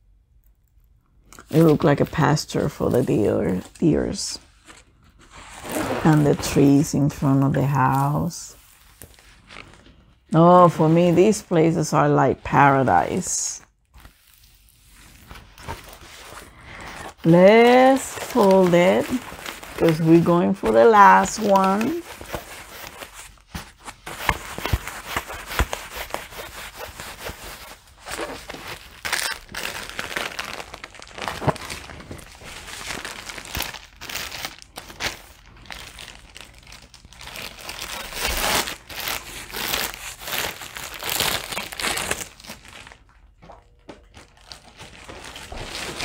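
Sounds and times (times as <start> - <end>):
plastic packaging crinkling: 13.8 - 46.0.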